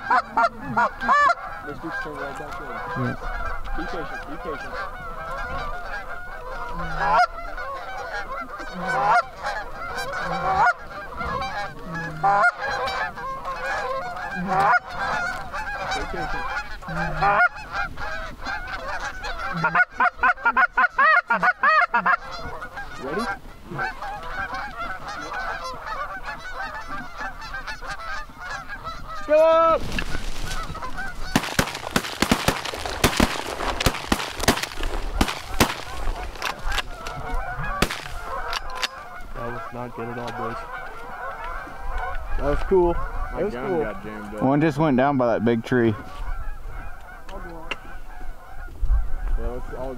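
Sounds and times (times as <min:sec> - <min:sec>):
geese honking: 0:00.0 - 0:49.9
wings flapping: 0:29.8 - 0:39.6.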